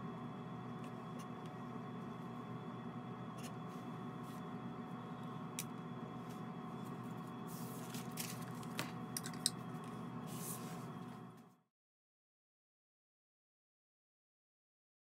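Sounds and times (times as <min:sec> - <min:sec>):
room hum: 0:00.0 - 0:11.6.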